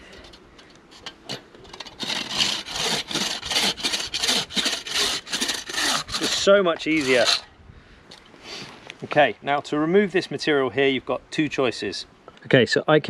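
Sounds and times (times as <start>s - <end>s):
saw rasping through wood: 1.8s - 7.5s.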